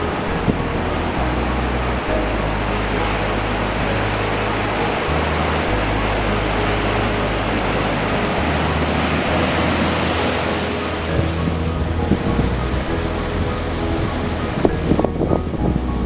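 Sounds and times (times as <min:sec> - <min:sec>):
waves breaking: 0:00.0 - 0:16.0.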